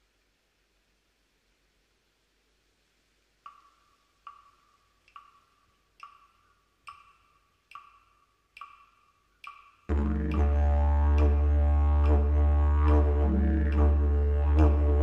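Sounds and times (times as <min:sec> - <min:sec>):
wooden clapsticks clicking: 0:03.4 - 0:10.6.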